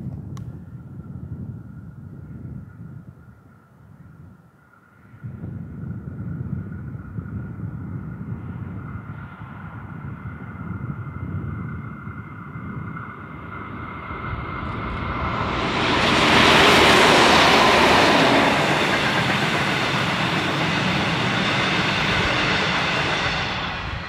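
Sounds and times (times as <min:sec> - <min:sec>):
diesel locomotive passing: 0:11.1 - 0:24.0
carriages rolling on rails: 0:12.7 - 0:24.0.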